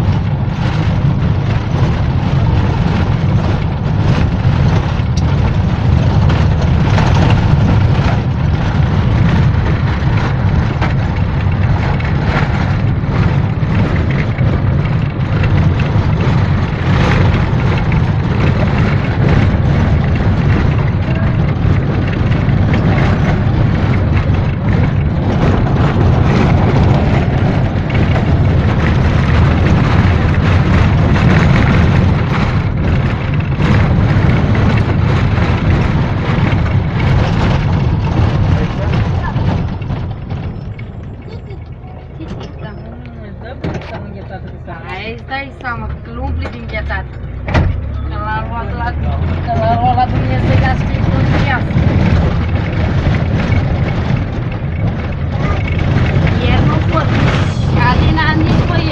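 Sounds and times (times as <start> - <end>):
minibus engine and road rumble: 0.0 - 58.9
small knocks and rattles: 43.6 - 58.9.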